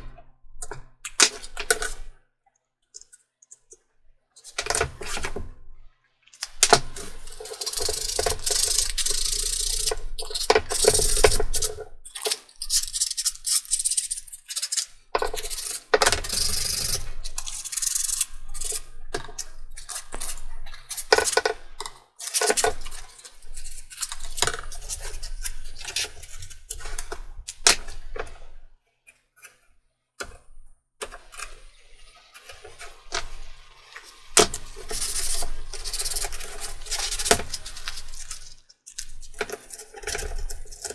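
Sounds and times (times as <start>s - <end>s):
hand sanding wood: 31.3s - 38.6s.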